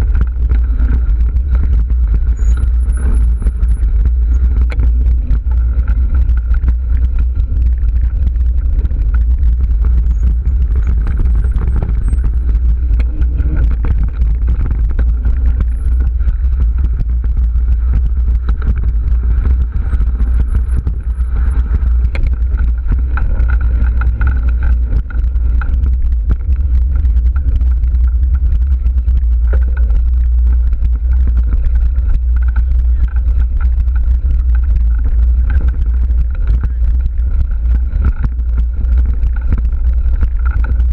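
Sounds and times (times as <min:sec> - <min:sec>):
bike rattling over rough trail: 0:00.0 - 0:40.9
wind buffeting microphone: 0:00.0 - 0:40.9.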